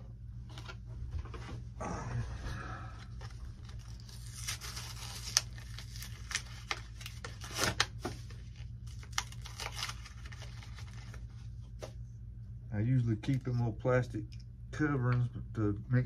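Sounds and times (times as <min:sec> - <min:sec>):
plastic packaging crinkling: 0:03.1 - 0:11.5.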